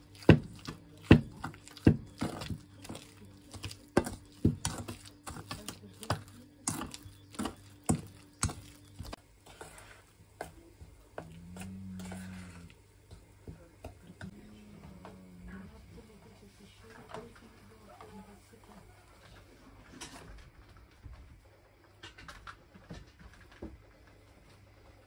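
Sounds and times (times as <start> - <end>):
hands mashing mixture in a bowl: 0.0 - 19.5.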